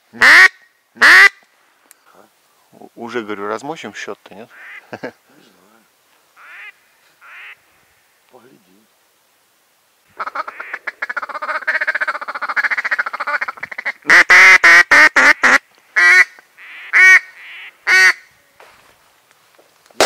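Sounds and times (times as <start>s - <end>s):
duck quacking: 6.4s - 7.6s, 10.2s - 18.3s.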